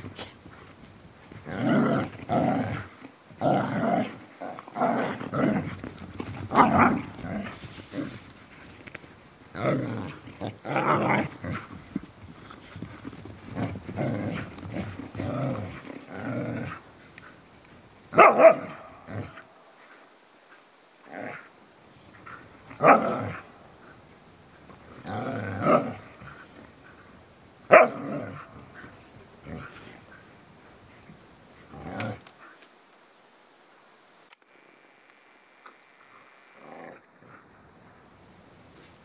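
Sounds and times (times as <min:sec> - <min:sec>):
dogs growling: 0:01.3 - 0:08.8, 0:09.5 - 0:11.9, 0:12.5 - 0:17.4, 0:18.2 - 0:19.5, 0:22.2 - 0:30.4, 0:31.6 - 0:32.6, 0:36.0 - 0:37.6
dog barking: 0:18.2 - 0:18.9, 0:27.7 - 0:28.0.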